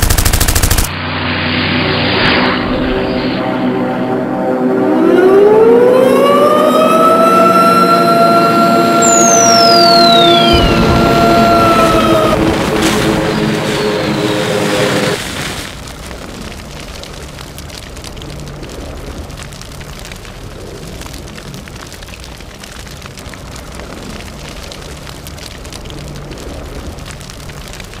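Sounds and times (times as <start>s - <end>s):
fire crackling: 0.0s - 0.9s, 8.9s - 28.0s
music: 3.4s - 15.2s.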